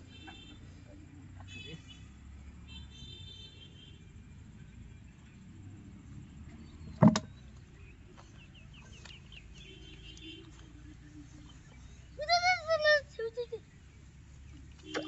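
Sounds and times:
sharp knock: 7.0s - 7.3s.

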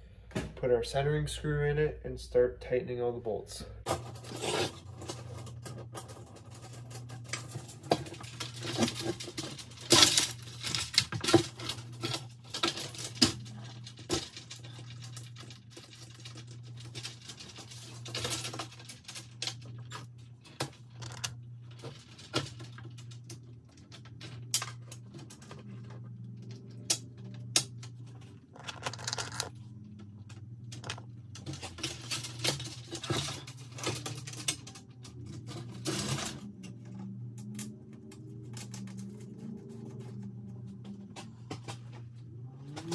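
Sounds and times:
low hum: 0.0s - 42.9s
bolts and nuts rattling on plastic: 3.8s - 36.5s.

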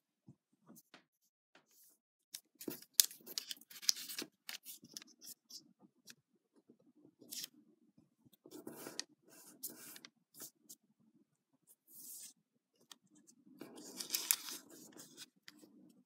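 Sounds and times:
paper rustling and crackling: 13.6s - 15.3s.

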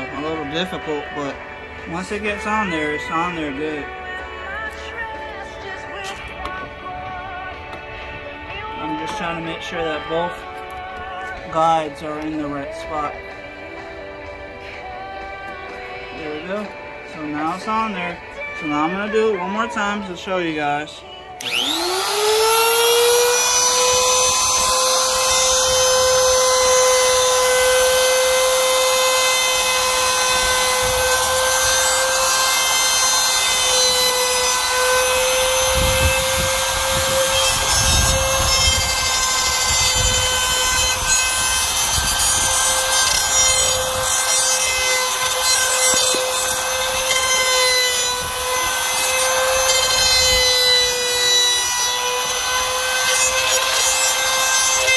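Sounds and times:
router motor whining: 21.2s - 54.9s
router bit cutting aluminium: 21.4s - 54.9s.

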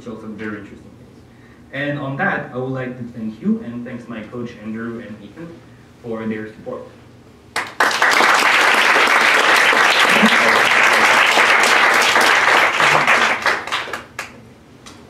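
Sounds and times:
audience applauding: 7.6s - 14.4s.

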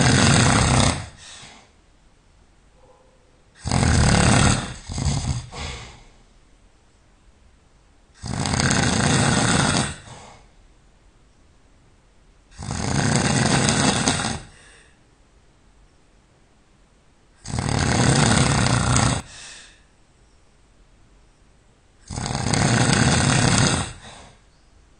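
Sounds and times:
person snoring loudly: 0.0s - 1.5s, 3.6s - 6.1s, 8.2s - 10.5s, 12.5s - 14.8s, 17.4s - 19.4s, 22.0s - 24.4s.

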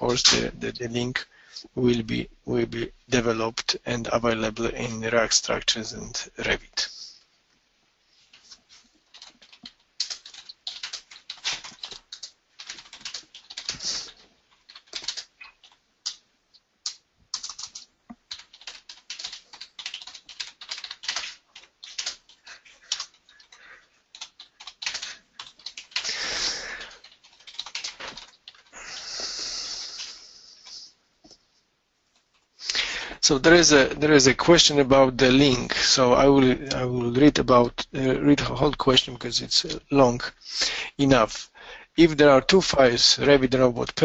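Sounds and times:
computer keyboard typing: 9.0s - 16.2s, 16.8s - 29.2s.

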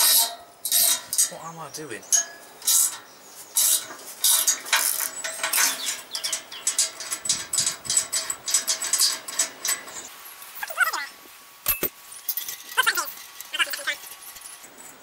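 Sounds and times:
spanner clicking on nut: 3.6s - 10.0s.

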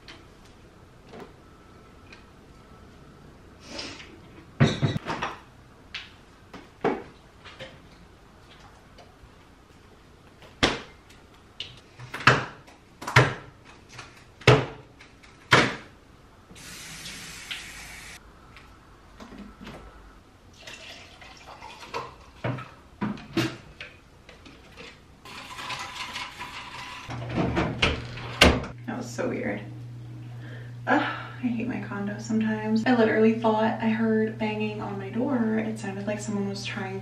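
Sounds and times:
kitchen tap running: 16.6s - 18.2s, 20.6s - 22.3s.

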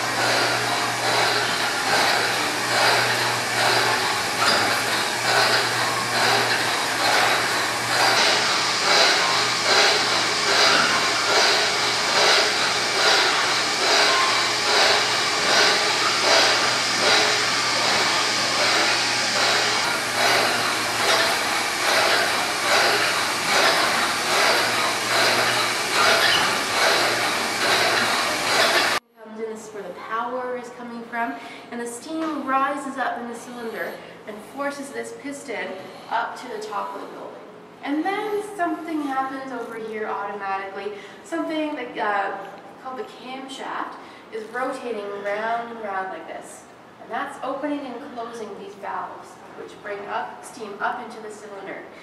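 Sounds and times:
beam engine rushing mechanical noise: 0.0s - 29.0s.

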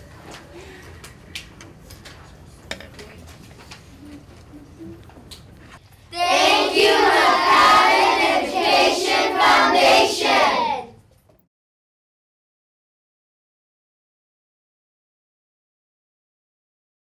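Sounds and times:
low classroom noise: 0.0s - 11.4s.

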